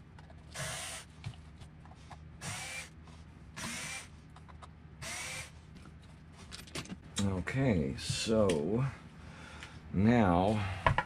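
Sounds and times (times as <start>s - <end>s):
cordless drill whirring: 0.5s - 1.1s, 2.4s - 3.0s, 3.6s - 4.1s, 5.0s - 5.5s.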